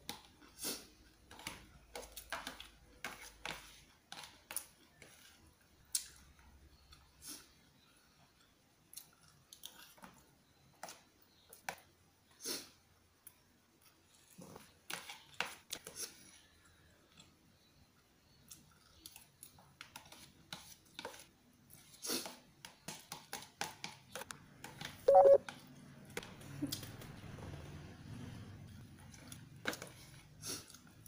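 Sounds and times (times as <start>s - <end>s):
short loud tone: 25.1s - 25.4s
slurping and chewing noodles: 28.7s - 31.0s.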